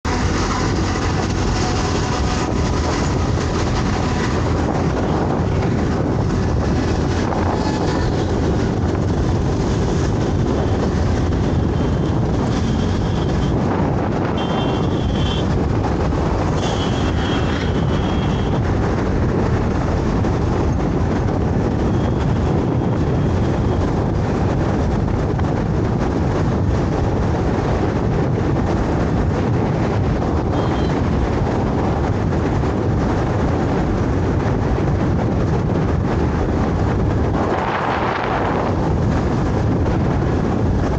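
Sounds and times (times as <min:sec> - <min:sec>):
scooter road noise: 0:00.0 - 0:40.9
wind on microphone: 0:00.0 - 0:40.9
high-pitched horn tones: 0:14.4 - 0:15.6, 0:16.6 - 0:18.6, 0:30.5 - 0:31.0.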